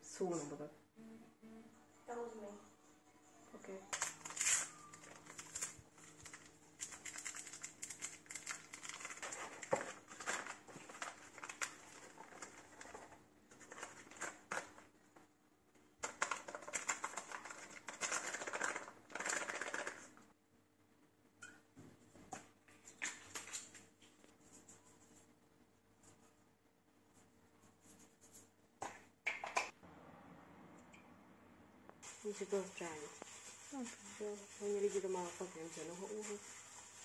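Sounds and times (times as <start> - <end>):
sachet tearing open: 3.9 - 12.8
food packaging rustling: 3.9 - 14.9, 16.0 - 20.2.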